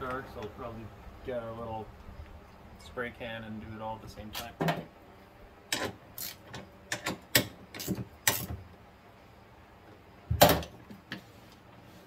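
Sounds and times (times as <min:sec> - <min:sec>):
hand tools clicking and knocking: 0:05.7 - 0:08.6.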